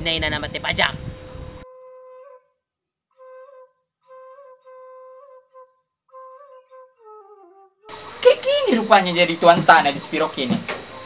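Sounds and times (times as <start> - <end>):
soft flute melody: 1.6 - 9.4, 10.0 - 11.0.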